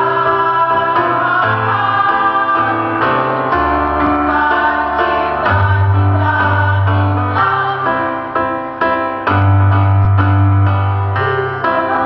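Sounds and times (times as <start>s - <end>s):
women's choir singing: 0.0s - 8.7s, 11.1s - 12.0s
instrumental accompaniment: 0.0s - 12.0s.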